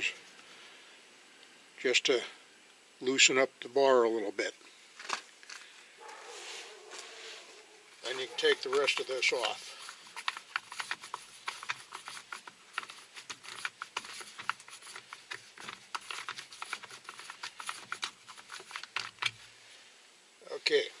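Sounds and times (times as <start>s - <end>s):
plastic parts clicking: 8.5s - 19.4s.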